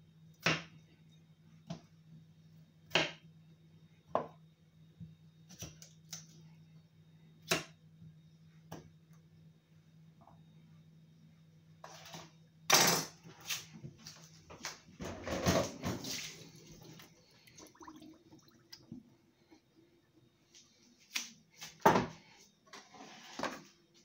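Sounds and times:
tap water running and splashing: 17.4s - 19.0s.

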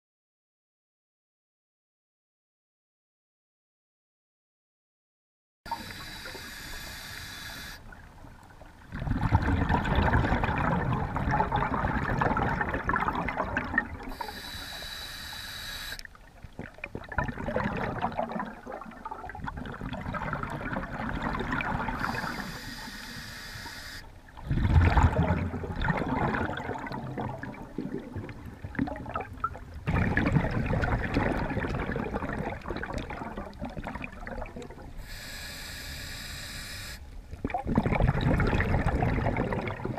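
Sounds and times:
regulator hissing inhalations: 5.7s - 7.8s, 14.1s - 16.0s, 22.0s - 24.1s, 35.0s - 37.1s
gurgling exhaled bubbles: 8.9s - 14.8s, 16.4s - 22.8s, 24.4s - 35.1s, 37.3s - 39.9s.

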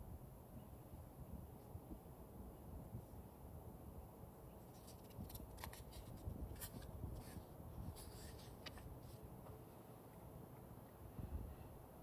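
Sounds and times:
paper page rustling: 4.7s - 9.2s.

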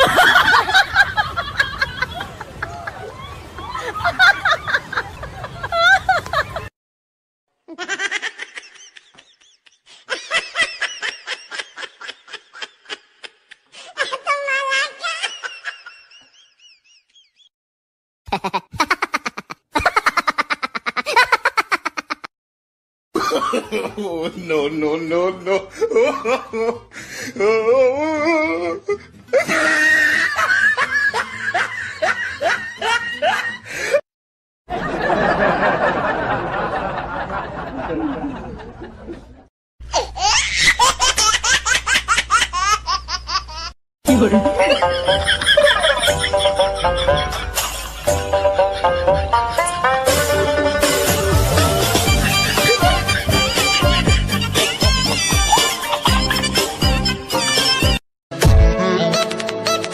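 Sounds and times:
person laughing: 7.7s - 16.3s, 18.3s - 22.3s, 23.2s - 34.0s, 37.7s - 57.7s
high-pitched giggling: 18.3s - 22.3s, 39.9s - 47.8s, 52.0s - 56.8s.

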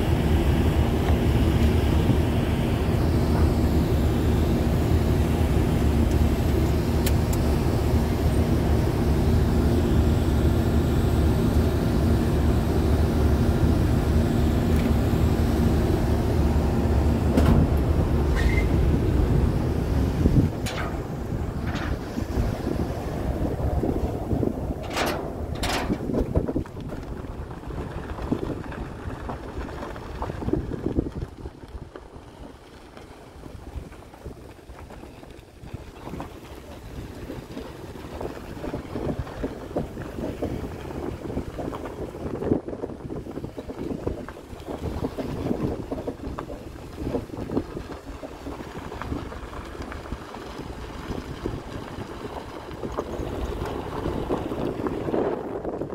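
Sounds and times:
car driving on gravel: 0.0s - 55.9s
wind buffeting microphone: 0.0s - 55.9s.

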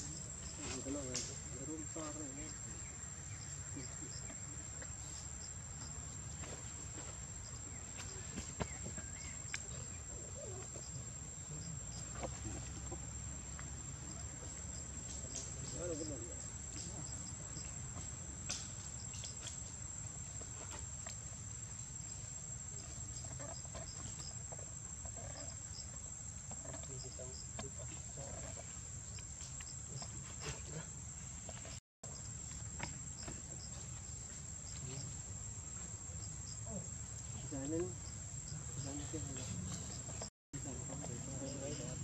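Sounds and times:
insects trilling: 0.0s - 42.0s.

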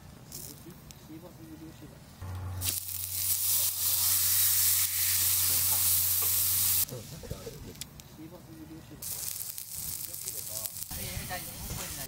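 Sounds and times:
steak sizzling on griddle: 2.6s - 6.9s, 9.0s - 12.0s.

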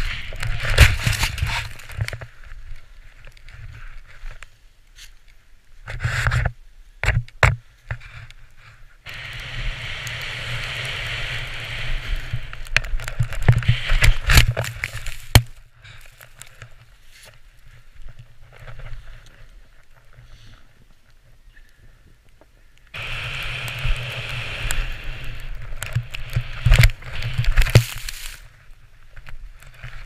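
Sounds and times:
snowboard hissing through snow: 0.0s - 1.8s, 9.1s - 12.7s, 13.4s - 15.3s, 23.0s - 28.6s
knocks and scuffs in snow: 0.0s - 2.7s, 23.0s - 28.7s.

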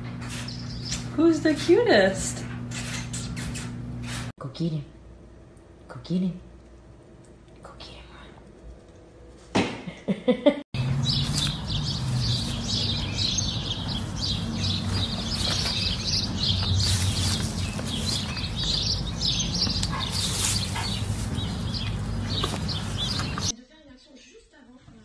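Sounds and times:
small birds chirping: 0.2s - 1.8s, 10.8s - 23.5s
steady low rumble: 10.8s - 23.5s.

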